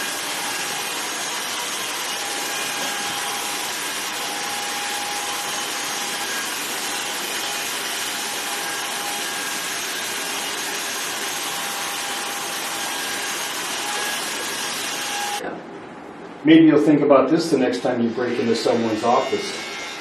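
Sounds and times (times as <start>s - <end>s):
clippers rasping through hair: 0.0s - 15.4s
hair clippers buzzing: 0.0s - 15.4s, 18.2s - 20.0s.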